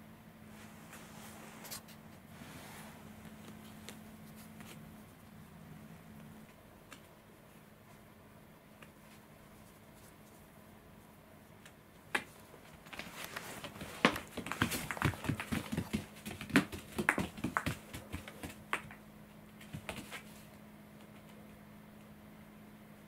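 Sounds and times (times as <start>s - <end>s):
cat paws thumping on foam mat: 12.1s - 21.4s.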